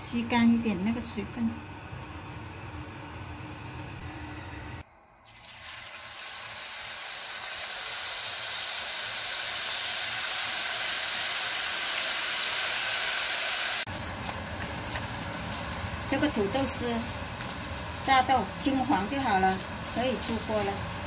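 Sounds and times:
potato frying in hot oil: 5.2 - 21.0.

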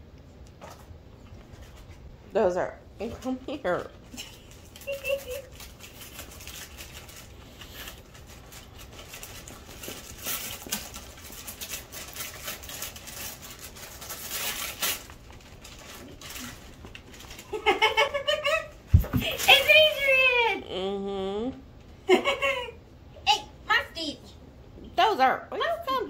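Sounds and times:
wrapping paper rustling: 4.0 - 18.0, 19.2 - 20.3.

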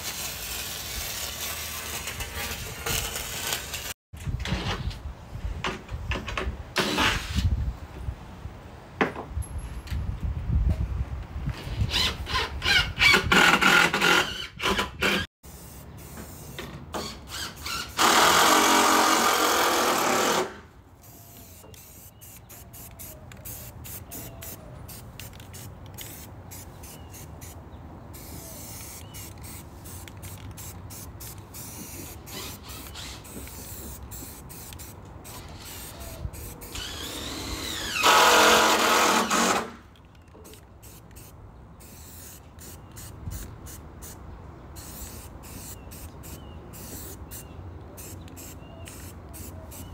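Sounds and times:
spray can hissing: 21.0 - 27.6, 28.2 - 36.8, 40.8 - 44.2, 44.8 - 49.9
cordless drill driving screws: 36.7 - 39.7.

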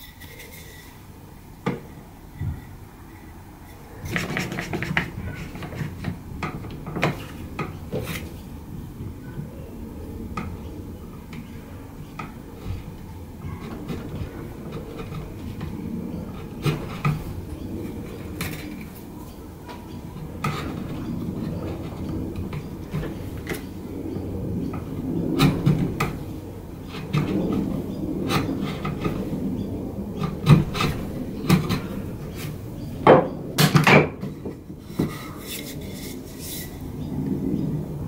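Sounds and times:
chisel scraping wood: 3.7 - 8.4, 12.2 - 18.9, 20.1 - 23.7, 25.4 - 29.4, 30.2 - 32.6, 34.2 - 36.8.

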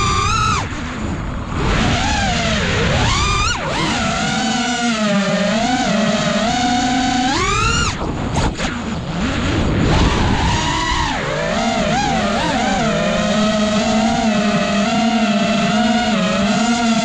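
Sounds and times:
rough rushing noise: 0.0 - 14.6
drone motors whining: 0.0 - 17.0.

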